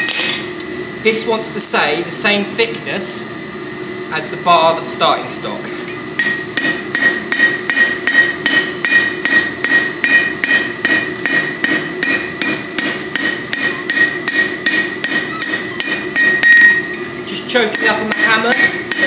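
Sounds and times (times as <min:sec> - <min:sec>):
hammer ringing on anvil: 0:00.0 - 0:00.6, 0:06.2 - 0:19.0.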